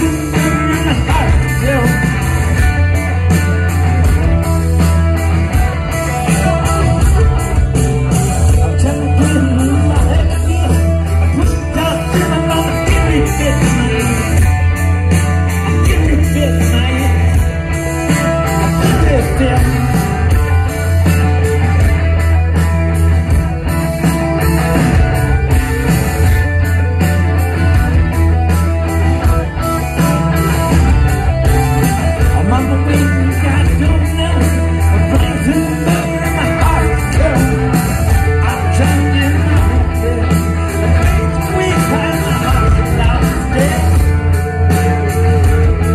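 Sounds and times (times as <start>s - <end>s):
live rock band playing: 0.0s - 45.9s
lead vocal singing: 8.5s - 14.6s, 32.2s - 45.9s.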